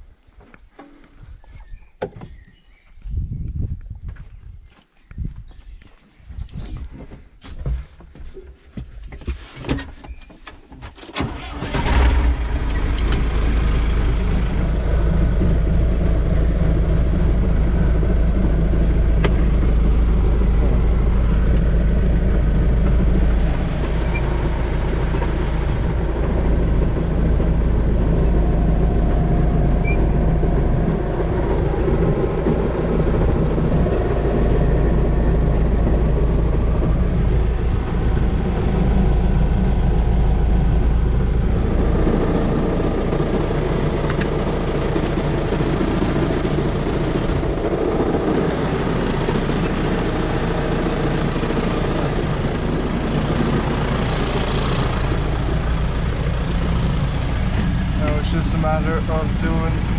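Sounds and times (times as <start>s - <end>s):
tractor diesel engine running: 8.1s - 59.9s.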